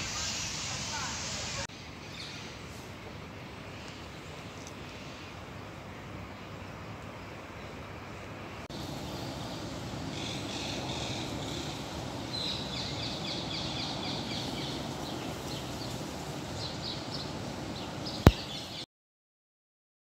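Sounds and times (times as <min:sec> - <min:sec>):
bird chirping: 0:16.6 - 0:18.8.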